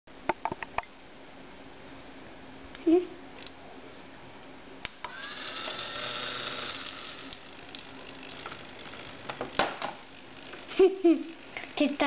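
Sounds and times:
electric gear motor whirring: 0:05.0 - 0:10.6.

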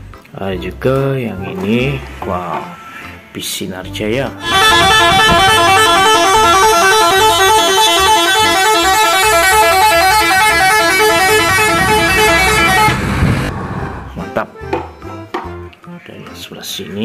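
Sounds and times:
loud musical bus horn: 0:04.4 - 0:14.1.

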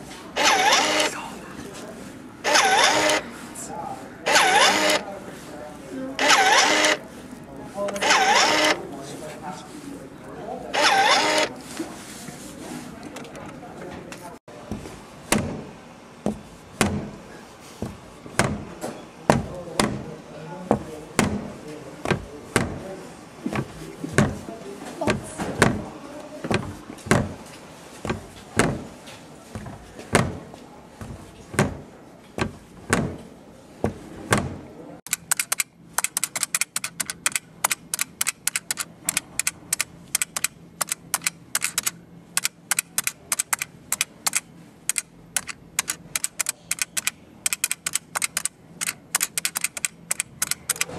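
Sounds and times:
fast light clicks: 0:35.1 - 0:50.9.

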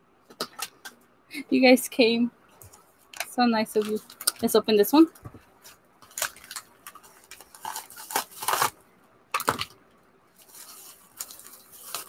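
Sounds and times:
bubble-wrap pouch crinkling: 0:05.6 - 0:08.8, 0:10.3 - 0:12.0
paper envelope tearing: 0:06.1 - 0:08.8, 0:10.4 - 0:12.0.

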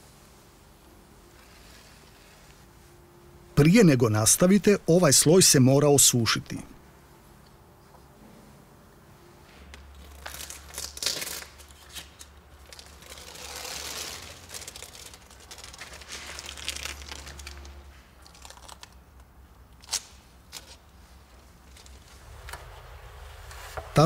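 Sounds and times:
adhesive tape crinkling: 0:09.6 - 0:22.8.

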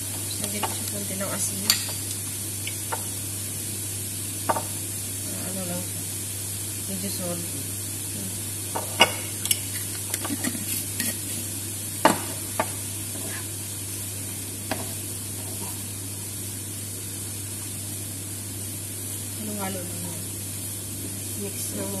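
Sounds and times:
cauliflower sizzling in a frying pan: 0:00.0 - 0:22.0
wooden spatula scraping a pan: 0:13.1 - 0:13.5.

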